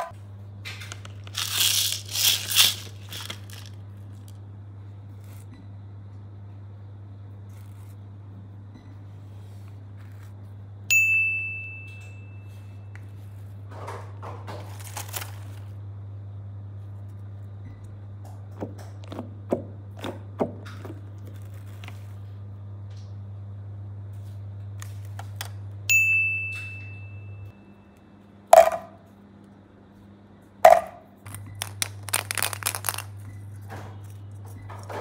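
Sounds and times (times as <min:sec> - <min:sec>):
plastic toys clicking: 0:00.9 - 0:03.7, 0:31.3 - 0:33.1
bright bell ding: 0:10.9 - 0:12.8, 0:25.9 - 0:27.5.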